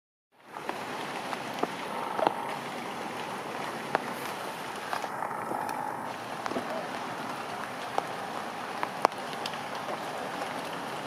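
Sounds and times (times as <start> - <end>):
steady rain on leaves: 0.4 - 11.0.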